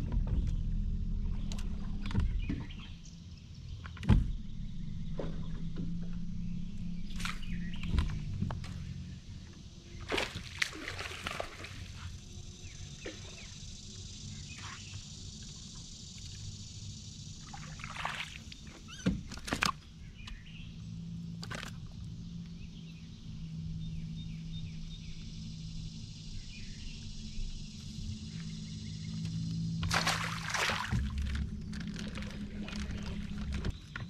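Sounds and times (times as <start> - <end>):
low hum: 0.0 - 18.0, 18.6 - 34.0
fish splashing at water surface: 10.1 - 12.0, 29.8 - 33.2.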